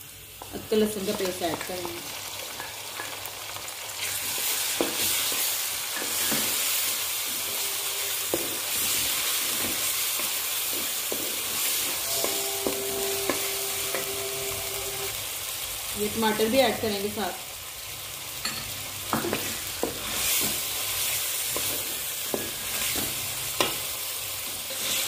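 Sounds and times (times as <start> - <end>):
onions sizzling in hot ghee: 0.0 - 25.0.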